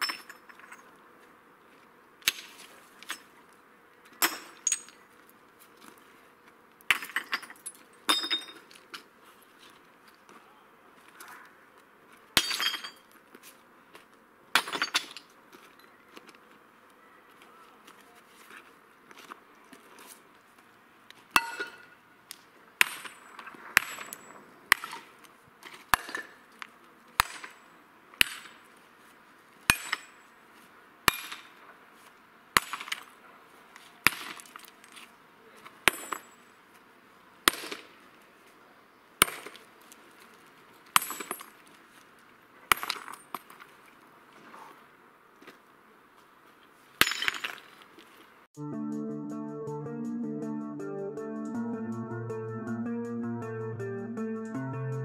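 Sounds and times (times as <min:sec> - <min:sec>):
sledgehammer cracking stone: 0:32.6 - 0:33.1, 0:34.1 - 0:34.5.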